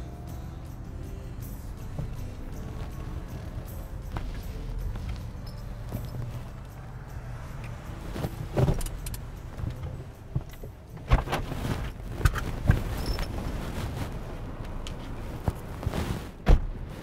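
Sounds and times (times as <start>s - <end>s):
keys jangling: 0.7s - 11.1s
car ignition and control clicks: 7.5s - 13.4s.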